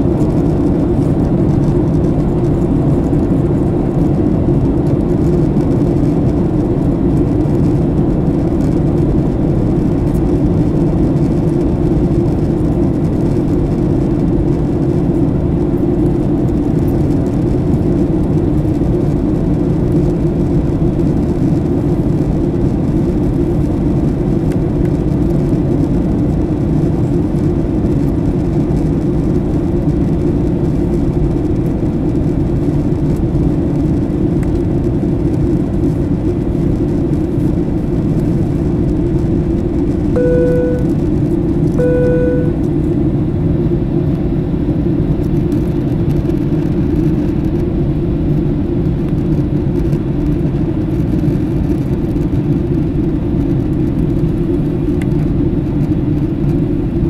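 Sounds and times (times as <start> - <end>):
vehicle engine rumble: 0.0 - 57.0
air noise: 40.0 - 42.9.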